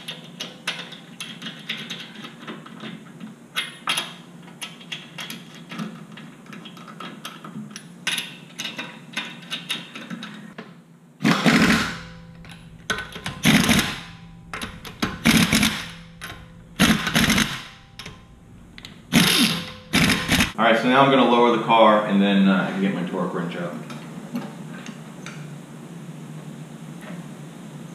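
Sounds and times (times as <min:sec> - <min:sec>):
pneumatic impact wrench bursts: 0:11.2 - 0:20.6.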